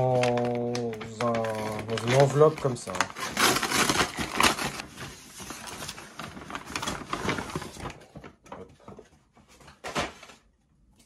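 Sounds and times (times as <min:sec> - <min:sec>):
paper envelope tearing: 0:00.0 - 0:08.0.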